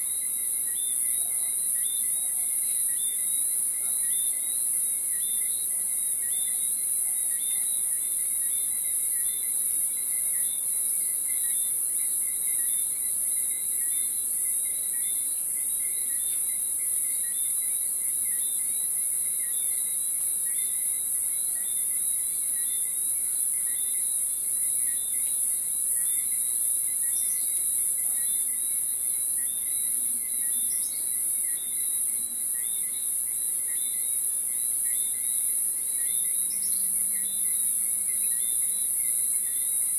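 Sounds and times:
regular cricket chirp: 0.0s - 39.9s
insects shrill drone: 19.4s - 39.9s.

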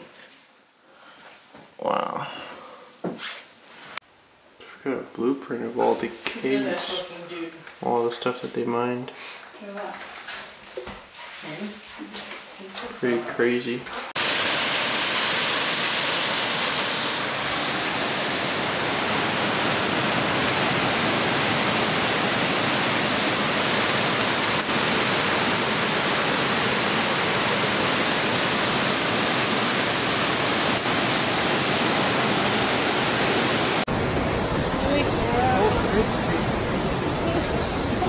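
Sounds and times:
waterfall rushing: 14.2s - 38.0s.

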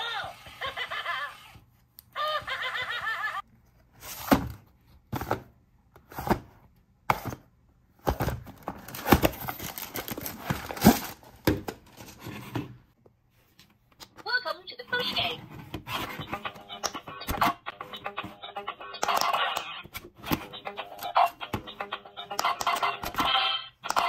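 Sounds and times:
talking toy voice: 0.0s - 1.5s, 14.3s - 15.4s, 18.0s - 19.9s
toy packaging handled: 8.0s - 12.5s.

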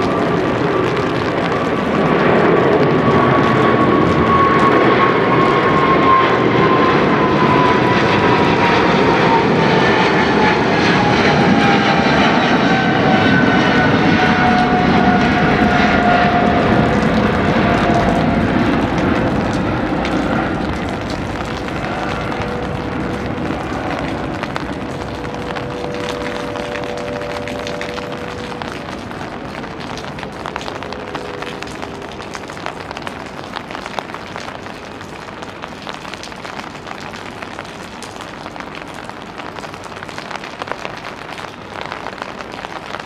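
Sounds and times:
jet roar with whine: 0.0s - 43.0s.

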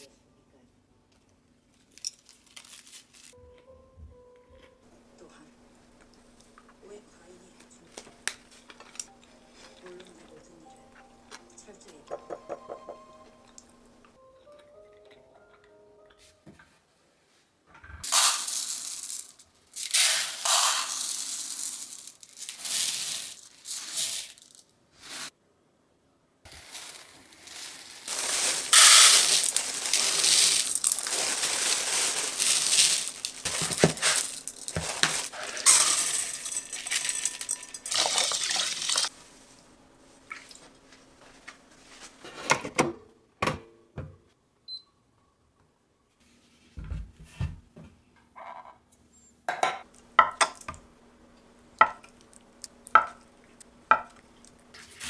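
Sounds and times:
rice grains pouring into plastic bowl: 18.1s - 25.3s, 26.5s - 39.1s.

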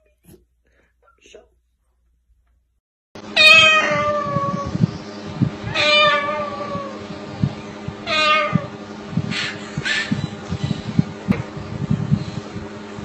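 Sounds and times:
cockatoo mimicking cat meow: 3.4s - 4.8s, 5.6s - 7.0s, 8.0s - 8.7s.

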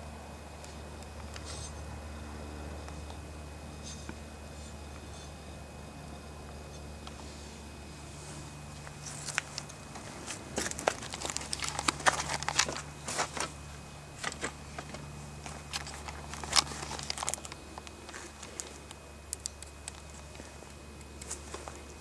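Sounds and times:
faint low hum: 0.0s - 22.0s
camera handling crackles: 9.0s - 13.5s, 14.2s - 20.3s.

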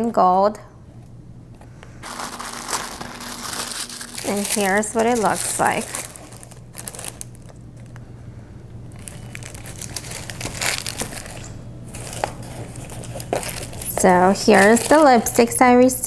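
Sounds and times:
paper rustling and crinkling: 2.0s - 8.0s, 8.9s - 15.5s.

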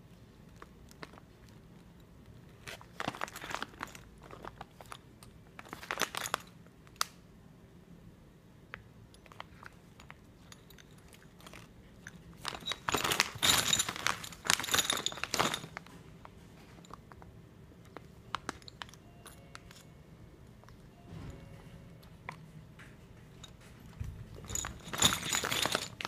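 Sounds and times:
small parts shifting in bag: 0.5s - 6.6s, 9.2s - 16.0s, 23.4s - 26.0s
plastic bag crinkling: 2.5s - 6.5s, 12.3s - 16.0s, 24.3s - 26.0s.

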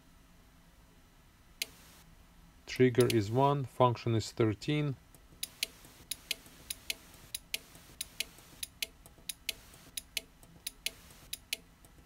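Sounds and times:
light sharp clicks in pairs: 5.4s - 12.0s.

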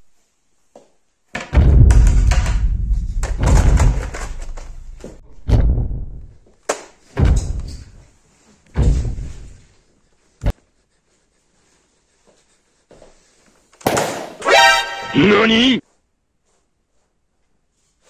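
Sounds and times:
loud heavy booms: 1.5s - 6.4s.

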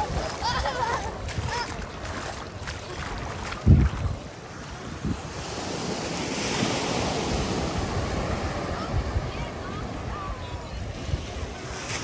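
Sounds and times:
sea surf washing onto beach: 0.0s - 12.0s
wind buffeting microphone: 0.0s - 12.0s.

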